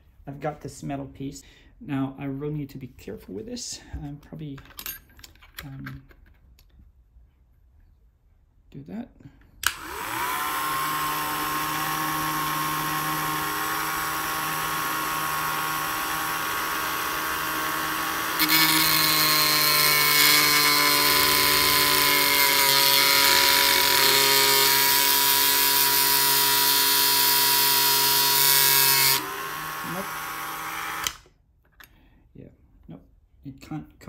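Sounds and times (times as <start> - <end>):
rotary tool whining: 9.6 - 31.3.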